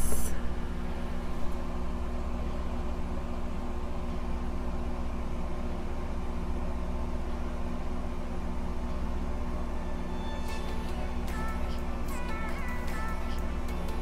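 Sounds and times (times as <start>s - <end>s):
background hum and hiss: 0.0s - 14.0s
music: 9.6s - 14.0s.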